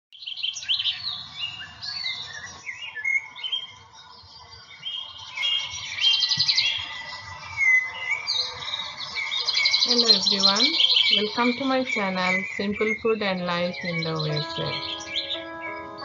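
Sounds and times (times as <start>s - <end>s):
songbirds singing: 0.2s - 16.0s.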